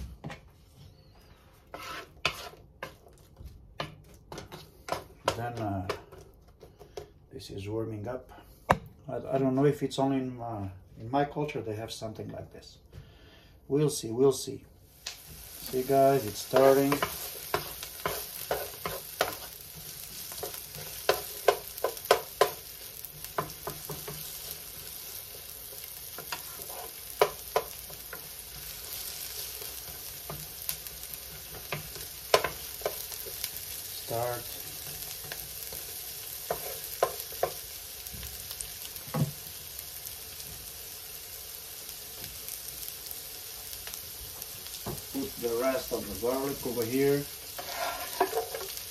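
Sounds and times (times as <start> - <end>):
onions sizzling in a frying pan: 0.2 - 6.2, 13.9 - 48.9
wooden spoon tapping a pan: 16.4 - 19.6, 20.2 - 24.4, 26.2 - 28.6, 29.9 - 33.5, 35.3 - 38.3.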